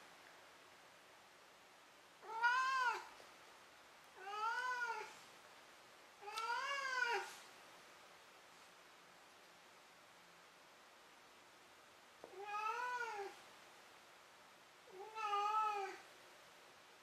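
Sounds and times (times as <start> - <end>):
cat meowing: 2.2 - 3.1, 4.2 - 5.2, 6.2 - 7.3, 12.3 - 13.4, 14.9 - 16.0.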